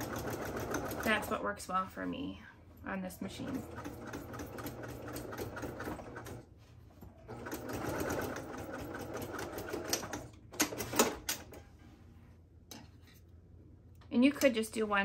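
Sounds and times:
electric sewing machine stitching: 0.0 - 1.3, 3.4 - 6.4, 7.3 - 11.2.

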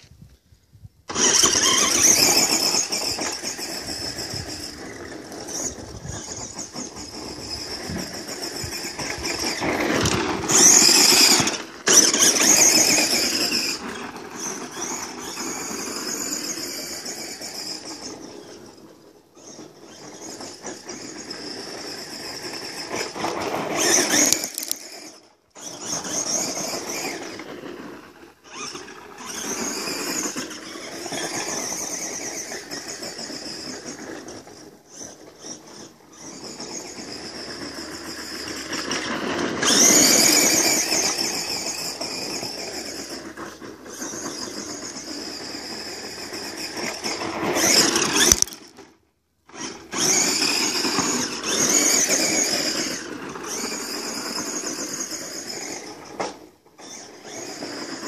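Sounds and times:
electric motor whining: 1.1 - 27.5, 28.4 - 48.8, 49.5 - 58.0
tyres crunching on gravel: 19.9 - 48.9.

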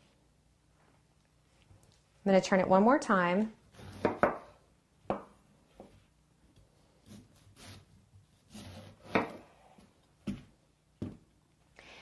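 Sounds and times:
knife cutting through pineapple: 7.0 - 9.4.

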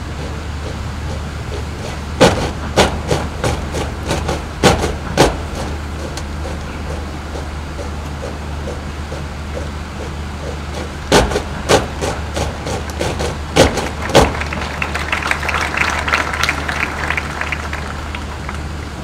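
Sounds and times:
boots stamping in unison: 0.0 - 14.4
steady low hum: 0.0 - 19.0
scattered applause: 13.1 - 19.0.

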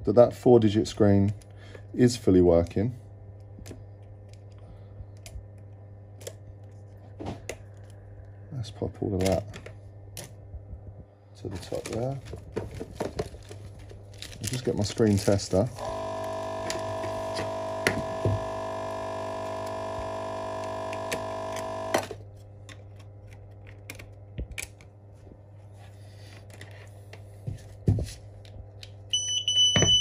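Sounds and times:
electrical hum: 0.0 - 30.0
high electronic beep: 29.2 - 30.0.

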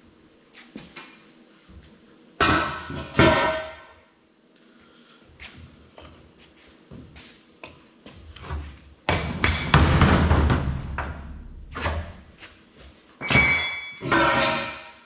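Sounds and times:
loud metal clang with ringing: 2.4 - 3.9, 13.2 - 15.0.

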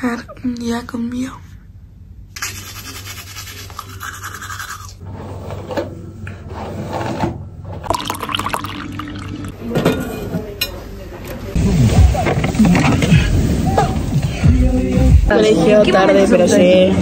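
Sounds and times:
toothbrush scrubbing teeth: 2.4 - 5.0.

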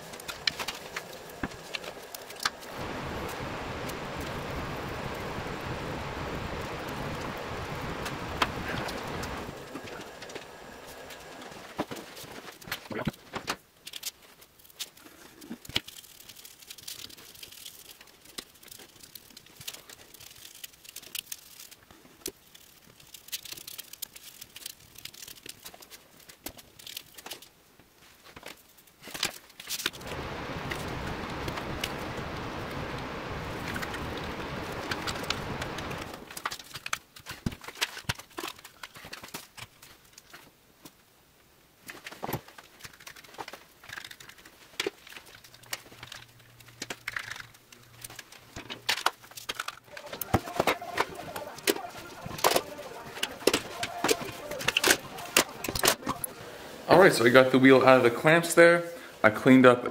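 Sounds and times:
steady rushing noise: 0.0 - 11.9, 30.0 - 36.4, 49.9 - 58.3.

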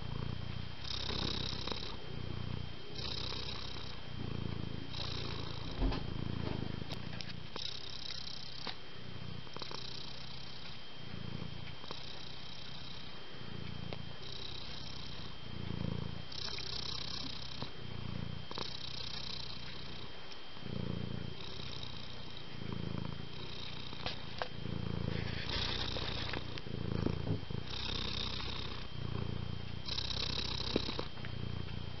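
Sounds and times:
cat purring: 0.0 - 32.0.

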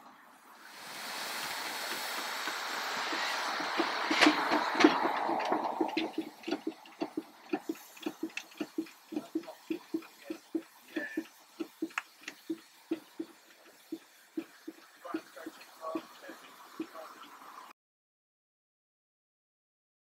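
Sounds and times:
steam hissing: 0.0 - 17.7
steady light clacking: 3.6 - 17.4.

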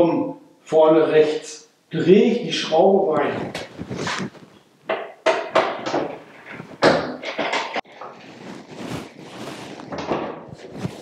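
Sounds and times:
soft rustle: 3.2 - 4.6, 7.9 - 11.0.

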